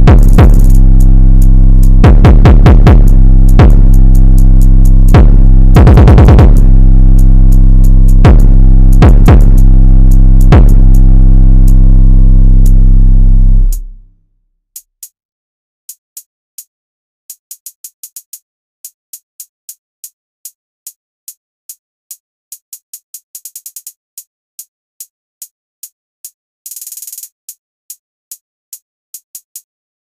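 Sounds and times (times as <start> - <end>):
drum machine hi-hats ticking: 0.0 - 11.9, 12.5 - 12.8, 26.7 - 27.6.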